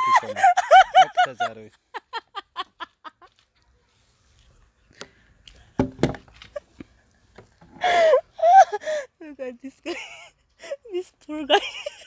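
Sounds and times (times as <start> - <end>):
person laughing: 0.0 - 3.3
sharp knocks: 5.8 - 6.2.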